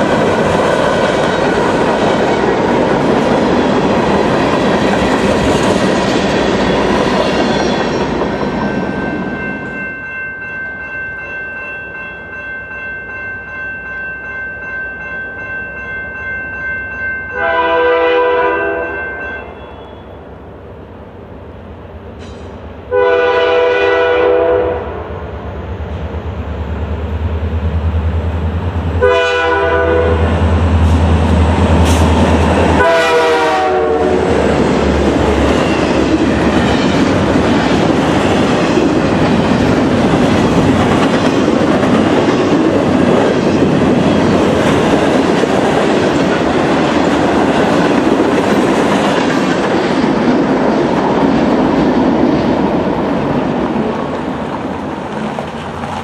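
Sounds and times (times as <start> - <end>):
train wheels clickety-clack: 0.0 - 9.8, 30.7 - 32.9, 34.2 - 56.0
locomotive air horn blasts: 17.4 - 20.1, 22.9 - 25.1, 29.0 - 30.3, 32.8 - 34.3.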